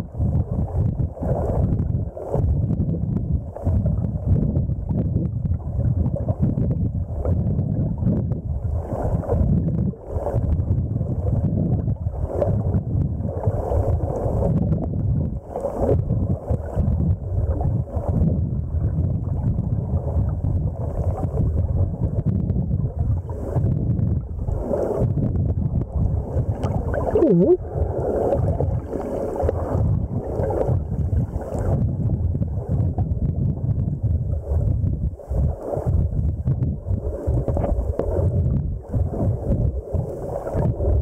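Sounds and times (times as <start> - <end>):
underwater water rushing: 0.0 - 41.0
faint fizzes: 25.9 - 31.8.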